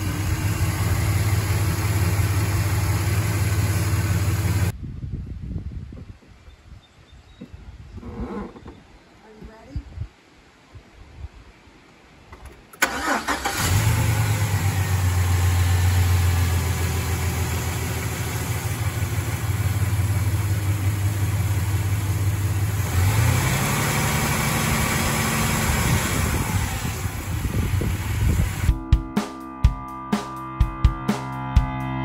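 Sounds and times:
engine idling: 0.0s - 4.7s, 12.8s - 28.7s
engine revving: 0.0s - 4.7s, 12.8s - 28.7s
engine cranking and starting: 12.4s - 17.0s.

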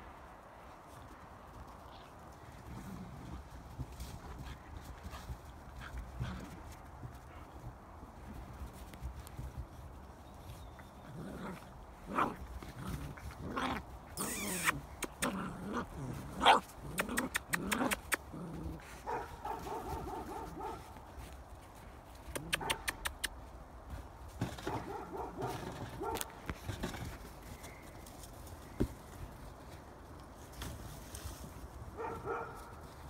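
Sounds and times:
puppies yapping and growling: 14.2s - 19.0s
puppy barking: 19.0s - 20.8s, 22.6s - 23.0s, 32.0s - 32.7s.

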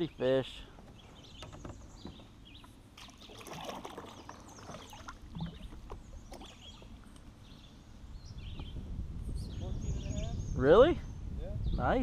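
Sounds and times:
birds chirping: 0.0s - 12.0s
water splashing: 3.0s - 7.2s.

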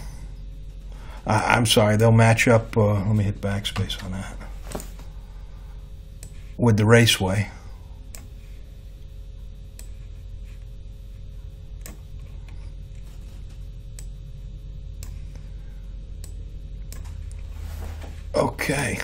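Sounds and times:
low room hum: 0.0s - 19.0s
computer mouse clicking: 9.8s - 10.0s, 15.0s - 15.2s, 16.2s - 17.4s.

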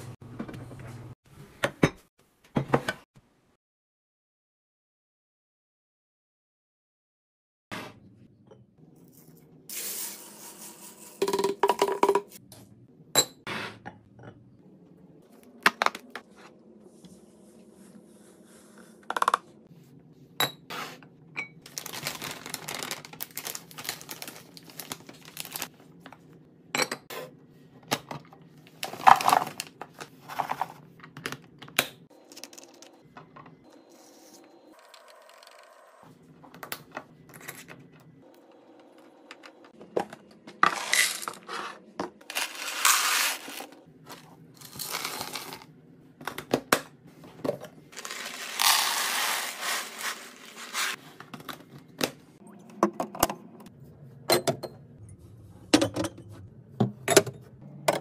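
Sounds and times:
plastic pouch crinkling: 21.7s - 25.7s, 48.0s - 51.0s.

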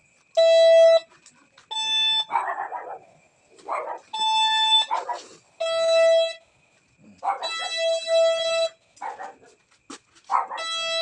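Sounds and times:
metal detector beeps: 0.4s - 1.1s, 1.7s - 2.4s, 4.2s - 5.0s.

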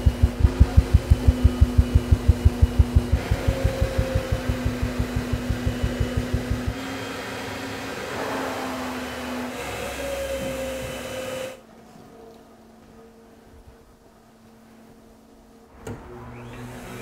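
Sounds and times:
rapid low pulsing: 0.0s - 6.8s
insulation blowing machine: 0.0s - 11.6s.

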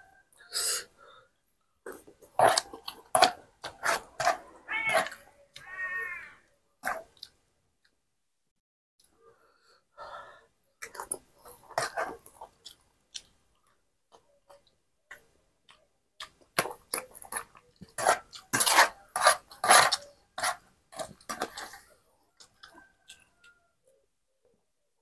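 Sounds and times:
eating sounds: 1.8s - 7.5s, 10.7s - 23.6s
metal spoon scraping a plate: 17.9s - 21.8s.

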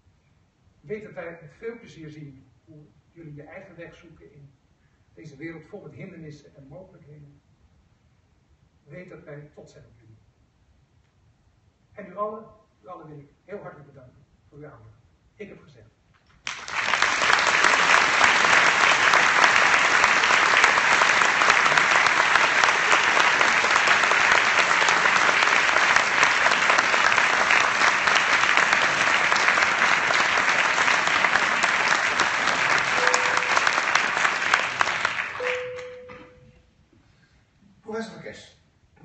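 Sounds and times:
audience applauding: 16.4s - 36.2s.

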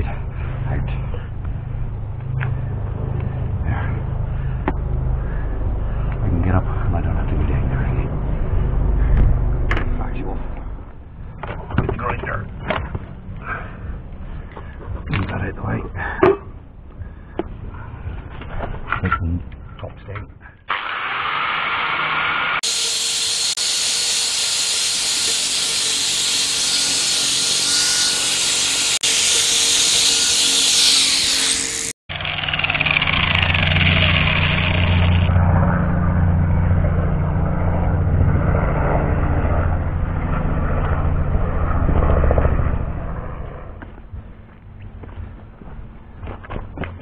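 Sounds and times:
low rumble: 0.0s - 19.8s
angle grinder grinding metal: 20.7s - 35.3s.

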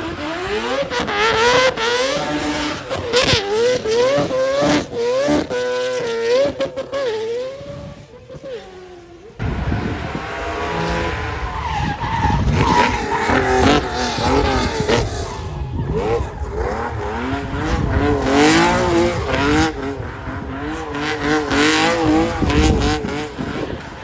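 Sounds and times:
car engine revving hard: 0.0s - 24.0s
car approaching with low rumble: 4.4s - 24.0s
tyre squeal: 10.7s - 17.3s.

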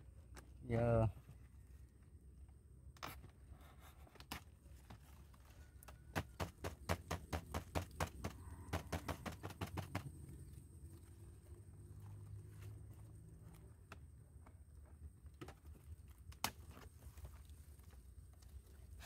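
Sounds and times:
sharp taps: 6.2s - 10.2s.

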